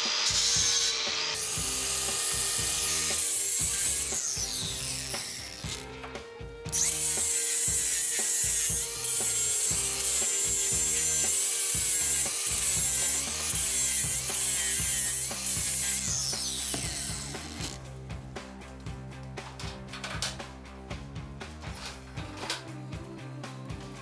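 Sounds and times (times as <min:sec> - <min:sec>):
angle grinder grinding metal: 0:00.0 - 0:17.8.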